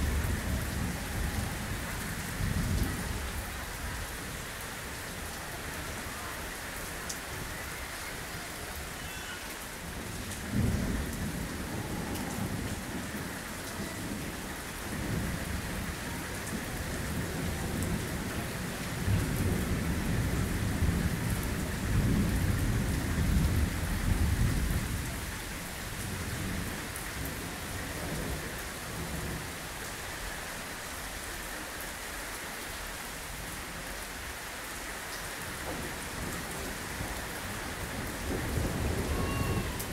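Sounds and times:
heavy rain: 0:00.0 - 0:39.9
rolling thunder: 0:09.9 - 0:29.4, 0:35.6 - 0:39.9.

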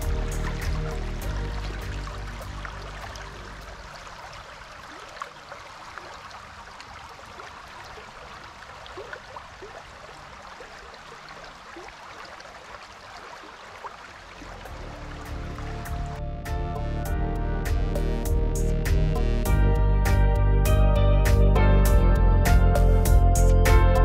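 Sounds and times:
stream flowing over riffles: 0:00.0 - 0:16.2.

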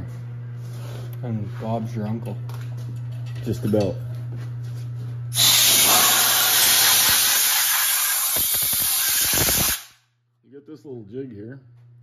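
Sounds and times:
low machine hum: 0:00.0 - 0:07.0, 0:10.0 - 0:12.0
compressed air hissing: 0:05.4 - 0:10.0.

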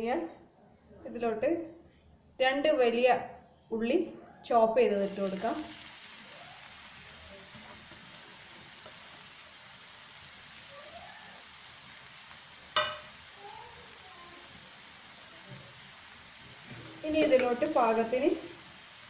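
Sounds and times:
onion sizzling in oil: 0:04.9 - 0:19.0.

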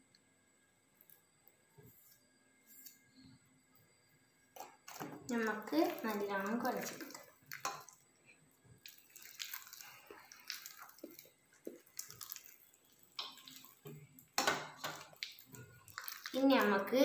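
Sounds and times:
hand squishing wet dough: 0:05.3 - 0:16.8.

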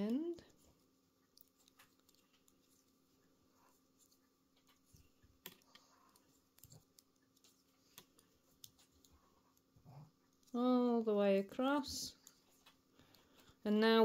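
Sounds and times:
knitting needles clicking: 0:04.0 - 0:09.1.

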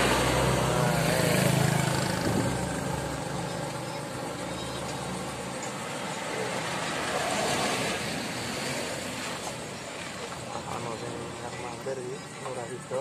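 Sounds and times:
car driving past: 0:00.0 - 0:11.2
truck rumble: 0:00.0 - 0:13.0.

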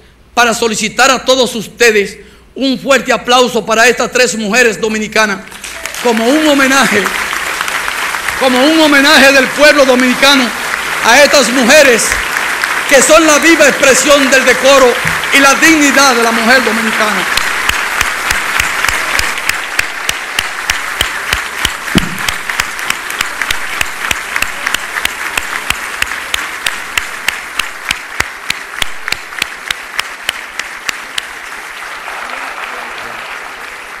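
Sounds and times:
audience applauding: 0:05.4 - 0:34.0
person clapping sharply: 0:09.9 - 0:13.2, 0:14.8 - 0:34.0.

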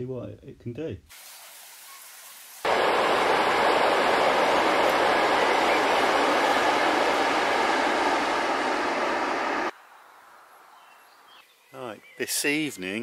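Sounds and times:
train rumbling over viaduct: 0:02.7 - 0:09.7.

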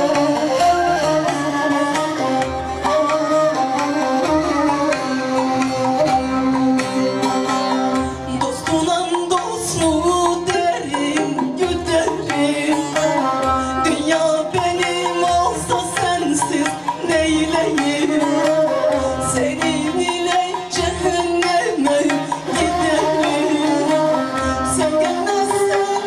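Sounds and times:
bowed fiddle melody: 0:00.0 - 0:26.0
hand drum rhythm: 0:00.0 - 0:26.0
plucked lute: 0:00.0 - 0:26.0
woman singing: 0:08.2 - 0:26.0.

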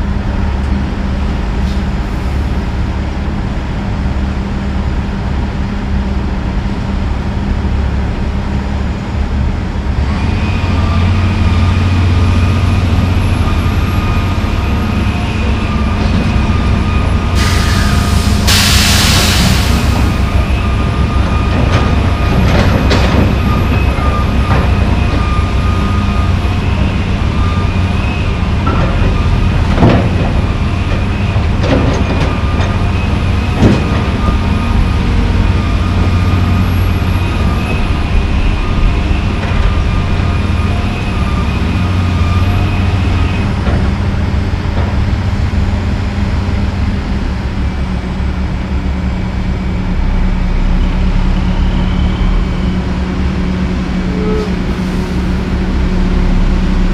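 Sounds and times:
excavator diesel engine whine: 0:00.0 - 0:56.9.

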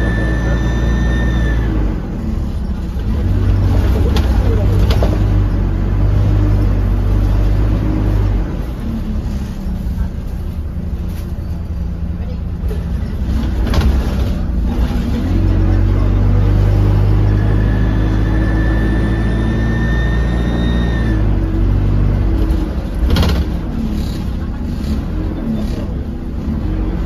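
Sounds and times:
high turbo whistle: 0:00.0 - 0:02.0, 0:17.2 - 0:21.5
bus engine drone: 0:00.0 - 0:27.0.

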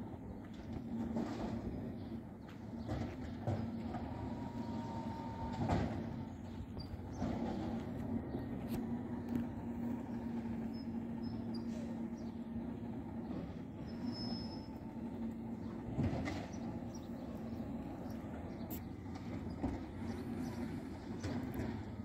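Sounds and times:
garbage truck engine and hydraulic hum: 0:00.0 - 0:22.0
clunk: 0:02.8 - 0:08.1, 0:15.6 - 0:16.8.

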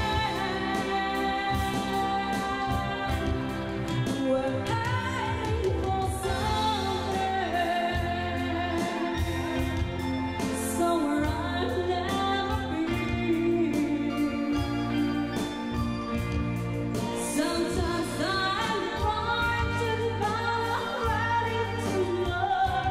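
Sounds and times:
band accompaniment with drum beat: 0:00.0 - 0:22.9
woman singing a ballad: 0:00.0 - 0:22.9.

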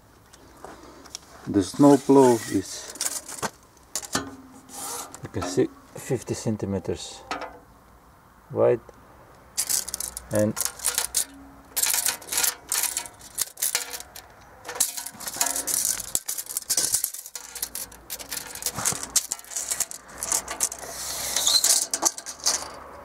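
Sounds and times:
tape blade scraping on metal: 0:04.0 - 0:05.7, 0:09.6 - 0:22.8
tape measure rattling and clicking: 0:09.6 - 0:22.9.

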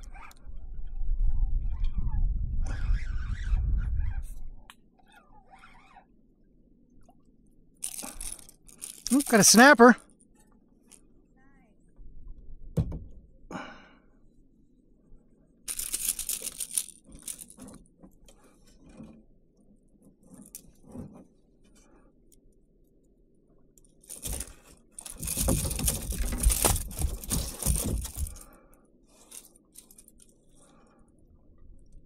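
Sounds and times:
metal pliers and hooks rattling: 0:24.1 - 0:28.5
rustling and knocking: 0:24.2 - 0:28.4.

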